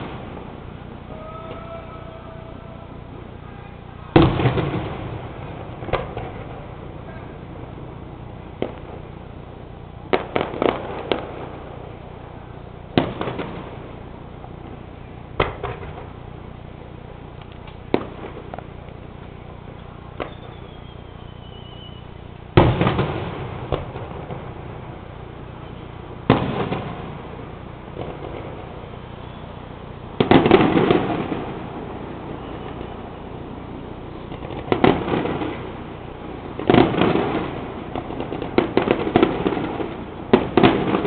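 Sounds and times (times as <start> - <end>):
crackle and rumble: 0.0 - 41.0.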